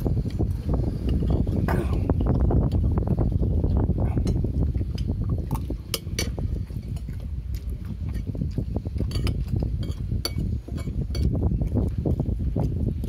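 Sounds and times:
chewing and lip-smacking: 1.5s - 10.6s
spoon scraping a ceramic plate: 9.0s - 11.4s.

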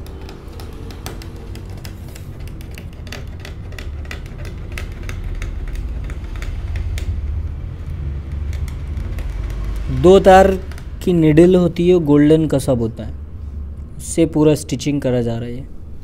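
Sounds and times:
needle punching through fabric: 0.0s - 7.3s
low rumble: 3.5s - 14.0s.

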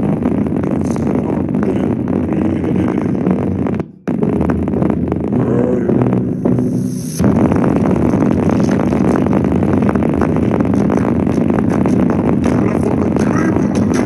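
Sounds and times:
bass-boosted music through speaker: 0.0s - 14.0s.

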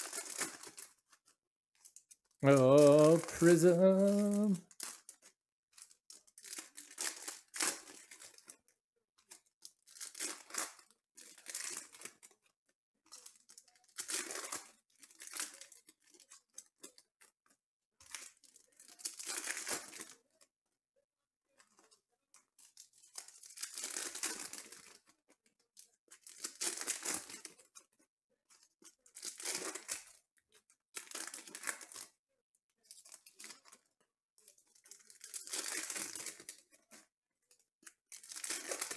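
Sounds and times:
foil wrappers tearing and crinkling: 0.0s - 1.2s, 1.8s - 8.6s, 9.2s - 12.4s, 13.1s - 17.1s, 18.0s - 20.2s, 22.6s - 25.2s, 25.8s - 27.8s, 28.6s - 30.2s, 30.9s - 32.2s, 32.8s - 33.9s, 34.6s - 36.9s, 37.8s - 38.9s.

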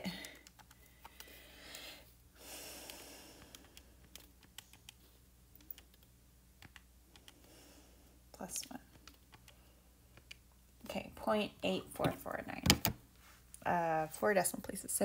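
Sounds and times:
calculator keys clicking: 0.2s - 1.8s.

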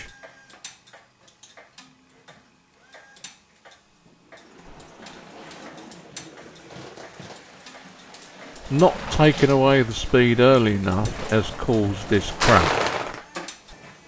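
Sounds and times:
model train wheels clicking: 4.3s - 13.6s.

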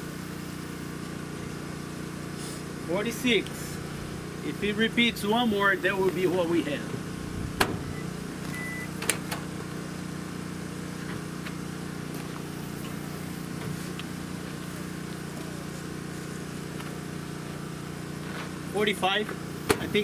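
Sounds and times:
microwave oven hum: 0.0s - 20.0s
short high beep: 7.8s - 8.9s.

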